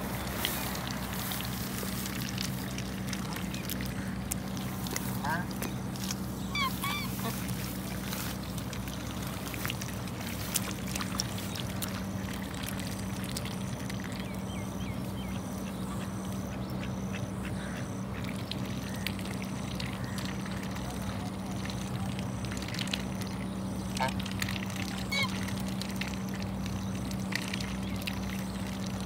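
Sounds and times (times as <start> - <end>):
steady low hum: 0.0 - 29.0
ducks quacking: 3.1 - 8.3, 15.6 - 19.0, 23.9 - 24.3, 24.9 - 25.5.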